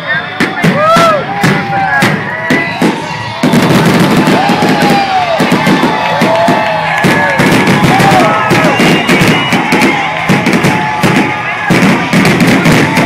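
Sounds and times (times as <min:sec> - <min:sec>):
fireworks bursting with bangs: 0:00.3 - 0:13.0.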